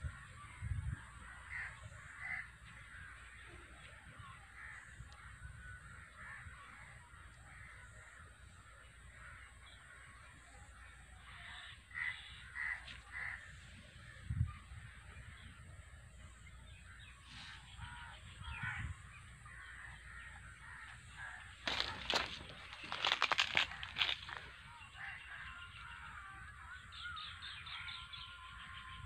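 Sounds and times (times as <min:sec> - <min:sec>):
crows cawing: 0:01.2 - 0:03.5, 0:04.5 - 0:15.4, 0:16.9 - 0:29.0.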